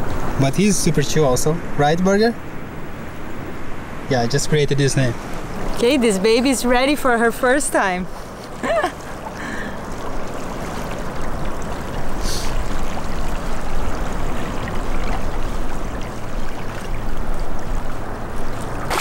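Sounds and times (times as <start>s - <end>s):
wind rumbling on microphone: 5.1s - 19.0s
water lapping at shore: 5.2s - 19.0s.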